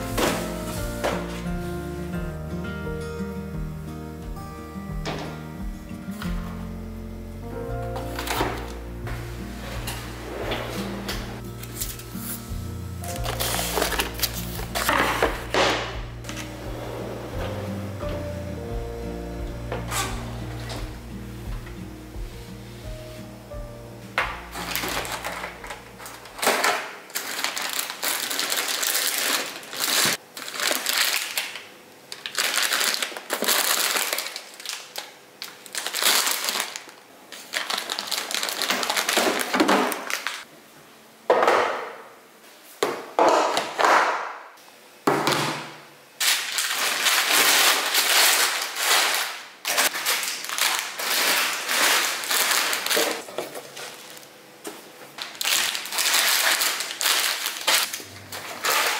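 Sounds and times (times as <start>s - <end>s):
plastic food packets crinkling: 13.1s - 15.6s, 24.4s - 40.5s, 46.2s - 54.4s, 55.1s - 58.9s.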